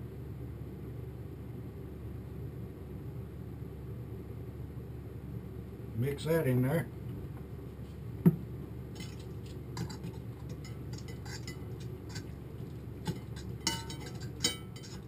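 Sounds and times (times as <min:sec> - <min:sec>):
metal utensil scraping skillet: 0:09.0 - 0:15.0.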